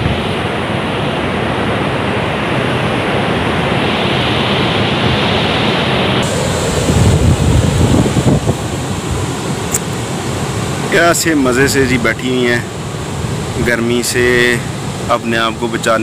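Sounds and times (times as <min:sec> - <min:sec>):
wind buffeting microphone: 0:00.0 - 0:02.3, 0:04.9 - 0:11.0.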